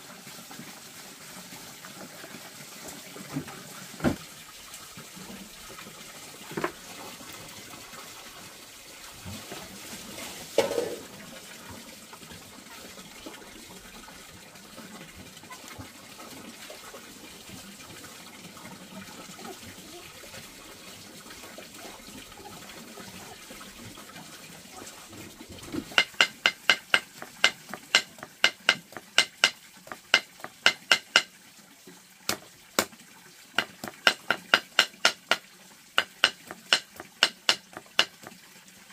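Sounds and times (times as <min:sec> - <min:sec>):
water running or splashing: 0:00.0 - 0:38.9
knocks: 0:25.8 - 0:31.3, 0:33.6 - 0:35.4, 0:36.0 - 0:38.2.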